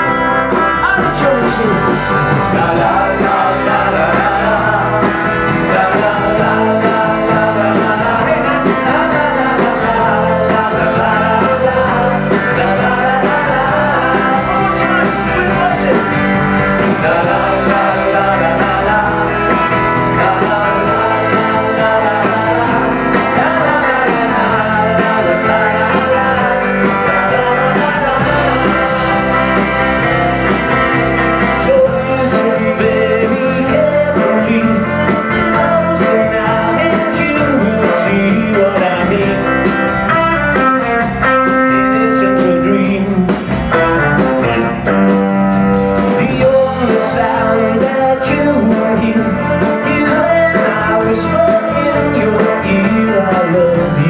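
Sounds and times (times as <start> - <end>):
lead vocal singing: 0.0 - 43.8, 46.0 - 54.0
drums: 0.0 - 54.0
electric guitars: 0.0 - 54.0.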